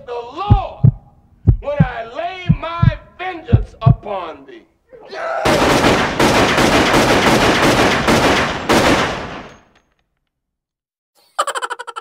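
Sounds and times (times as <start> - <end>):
rapid gunfire: 5.4 - 9.6.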